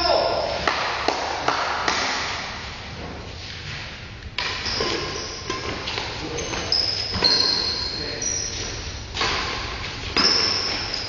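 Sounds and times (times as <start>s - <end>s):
racket striking shuttlecock: 0.6s - 2.5s
shoes squeaking on court floor: 4.6s - 11.0s.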